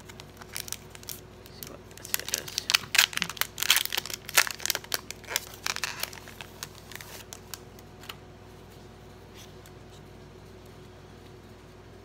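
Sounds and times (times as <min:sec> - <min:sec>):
plastic packaging crinkling: 0:00.0 - 0:08.1.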